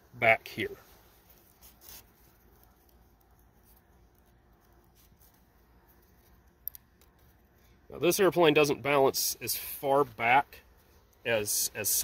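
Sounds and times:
faint handling noise: 0:00.2 - 0:07.9.

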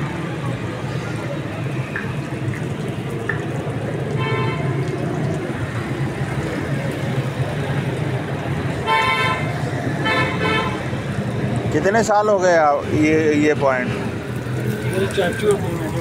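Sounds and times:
street traffic noise: 0:00.0 - 0:16.0
vehicle horn tooting: 0:04.2 - 0:04.7, 0:08.9 - 0:10.8.

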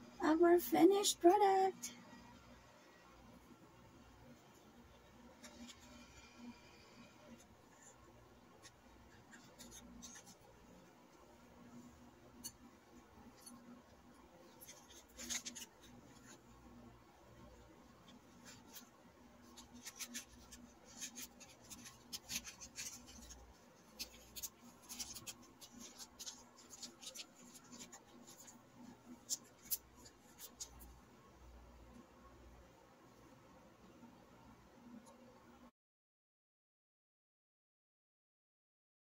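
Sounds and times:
plastic bag crinkling: 0:19.5 - 0:30.8.

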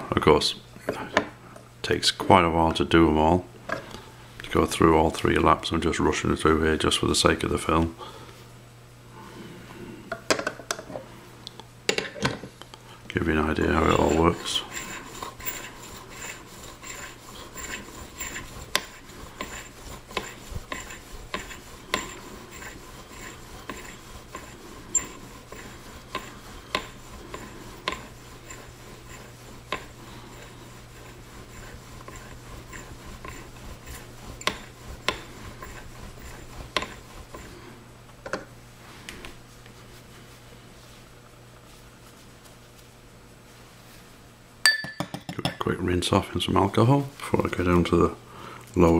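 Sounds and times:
rhythmic rasping scrape: 0:13.2 - 0:37.8.

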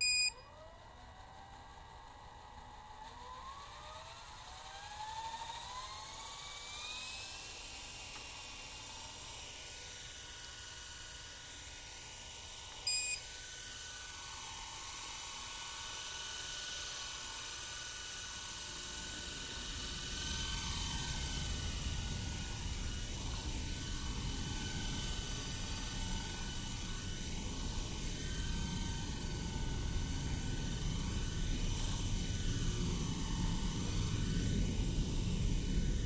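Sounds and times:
short high beep: 0:00.0 - 0:00.4, 0:12.9 - 0:13.2
rc helicopter motor whine: 0:00.0 - 0:36.0.

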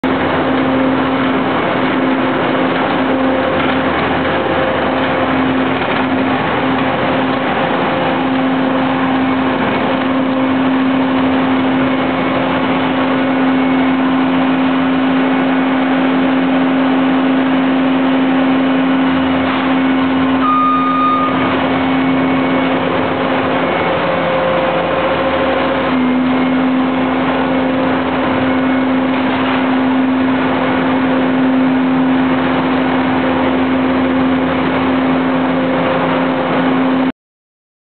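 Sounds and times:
high-pitched whine: 0:00.0 - 0:37.1
skid steer engine running: 0:00.0 - 0:37.1.

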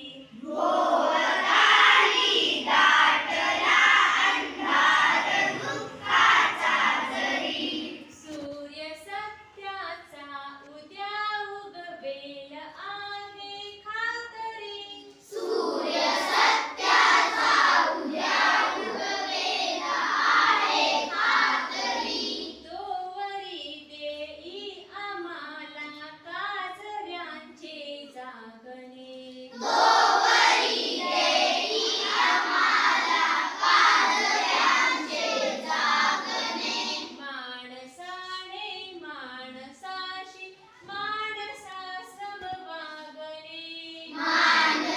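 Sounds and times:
children singing together: 0:00.3 - 0:08.3, 0:15.3 - 0:22.7, 0:29.5 - 0:37.2, 0:44.1 - 0:44.9.

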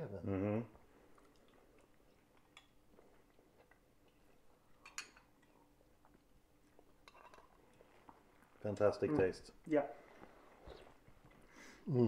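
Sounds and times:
metal spoons clinking on bowls: 0:04.8 - 0:05.3, 0:07.0 - 0:07.5.

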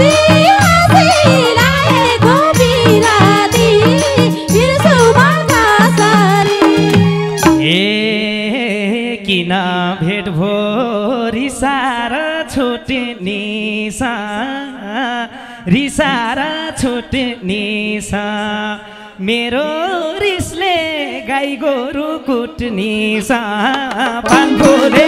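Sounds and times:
folk instrumental accompaniment: 0:00.0 - 0:07.8, 0:24.3 - 0:25.0
man singing into microphone: 0:07.4 - 0:25.0.

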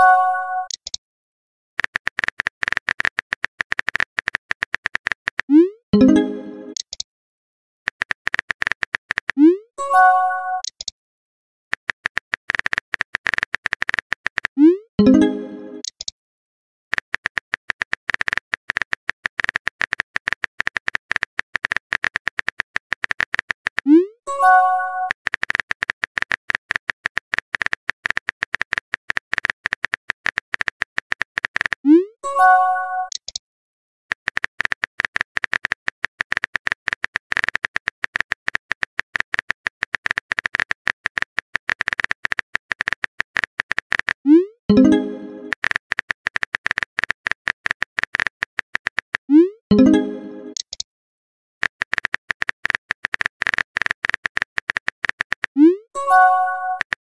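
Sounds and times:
phone keyboard clicks: 0:01.8 - 0:05.5, 0:07.9 - 0:09.4, 0:11.7 - 0:14.6, 0:15.2 - 0:16.1, 0:16.9 - 0:23.9, 0:25.3 - 0:31.8, 0:34.1 - 0:44.2, 0:44.9 - 0:49.3, 0:49.9 - 0:50.8, 0:51.6 - 0:55.6
message chime: 0:06.0 - 0:06.8, 0:15.0 - 0:15.8, 0:44.7 - 0:45.5, 0:49.7 - 0:50.6, 0:56.0 - 0:56.8.

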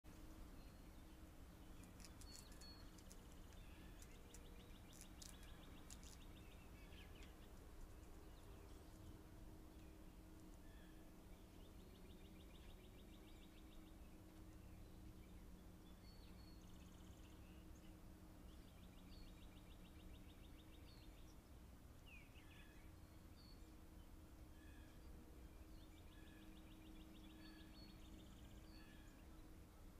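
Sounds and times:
bird chirp: 0:00.1 - 0:30.0
faint low hum: 0:00.1 - 0:30.0
songbird trilling: 0:01.7 - 0:07.4
faint clicks: 0:01.8 - 0:08.2.

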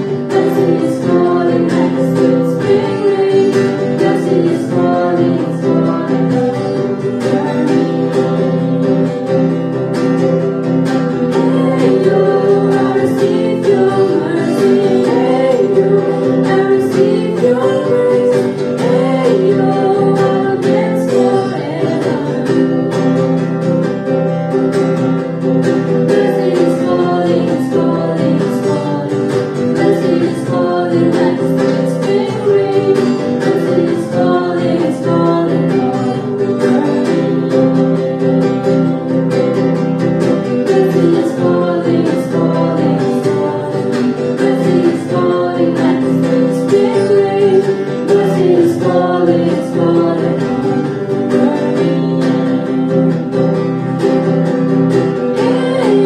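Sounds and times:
children singing together: 0:00.0 - 0:08.8, 0:11.2 - 0:22.8, 0:26.0 - 0:38.2, 0:40.4 - 0:53.2, 0:55.0 - 0:56.0
acoustic guitar strumming: 0:00.0 - 0:56.0.

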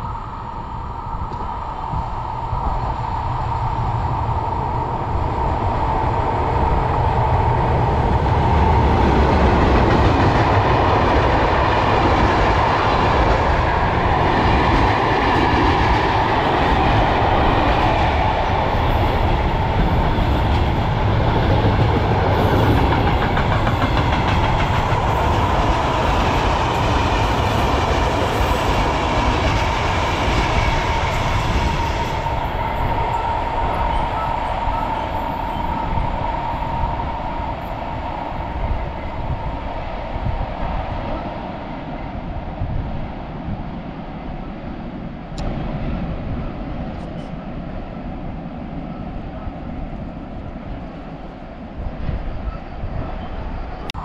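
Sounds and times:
train wheels roaring on rails: 0:00.0 - 0:54.0.

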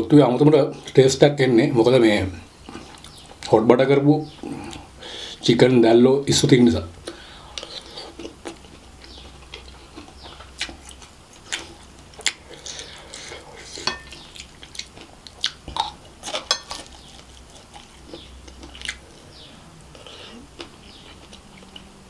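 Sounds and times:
chewing and mouth smacks: 0:07.0 - 0:21.9
spoon scraping on plate: 0:13.6 - 0:14.2.

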